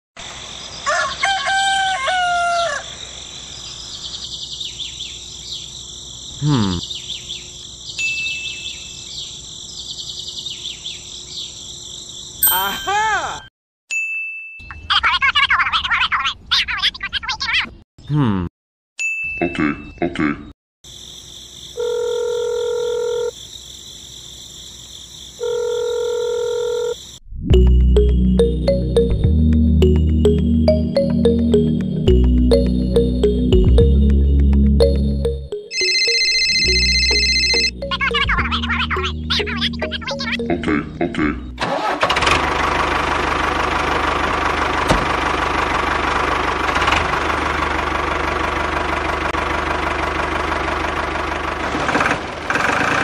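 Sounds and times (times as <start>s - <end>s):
rooster crowing: 0.8s - 3.0s
small birds chirping: 3.0s - 12.4s
telephone ringing tone: 21.8s - 23.3s, 25.4s - 27.0s, 35.4s - 38.2s.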